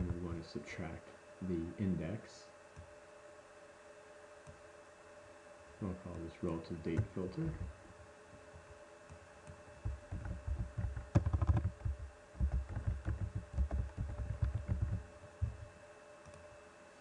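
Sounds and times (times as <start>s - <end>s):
typing on computer keyboard: 9.8s - 15.6s.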